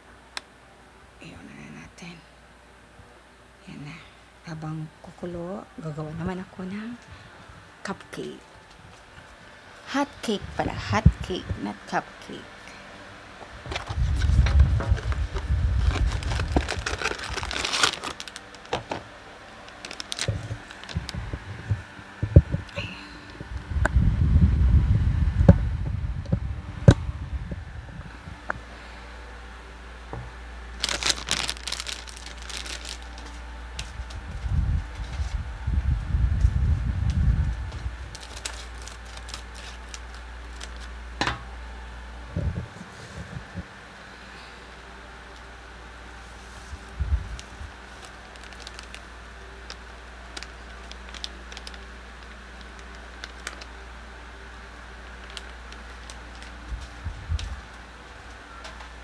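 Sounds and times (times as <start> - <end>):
box and bag rustling: 13.6 - 21.4, 30.7 - 35.4, 38.0 - 40.9, 46.5 - 49.0, 49.7 - 51.8.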